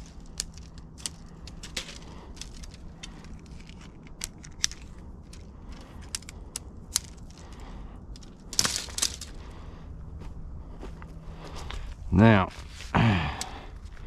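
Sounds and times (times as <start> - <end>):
scraping clatter of poles: 0.0 - 9.5
tent pole sections clicking: 0.0 - 9.6, 13.3 - 13.6.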